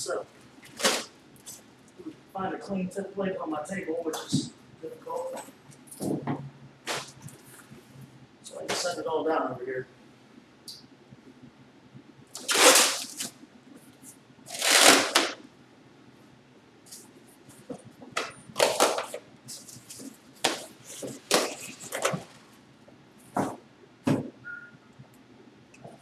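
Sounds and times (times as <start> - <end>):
plastic bags rustling: 0.6 - 1.6, 12.4 - 13.3, 14.5 - 15.4, 18.2 - 22.6.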